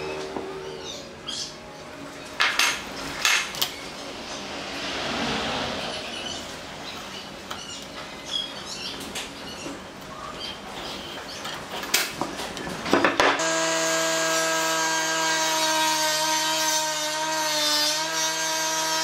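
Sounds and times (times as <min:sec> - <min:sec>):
swishing noise: 0:04.1 - 0:06.8.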